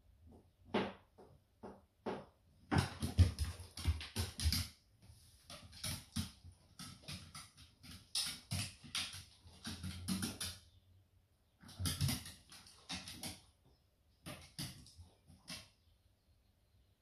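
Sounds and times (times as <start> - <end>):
dog claws tapping on floorboards: 1.2 - 4.8, 5.4 - 10.6, 11.6 - 13.5, 14.2 - 15.7.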